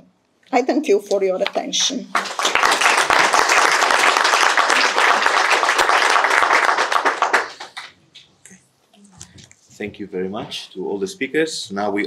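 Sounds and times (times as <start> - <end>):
audience applauding: 2.1 - 8.0.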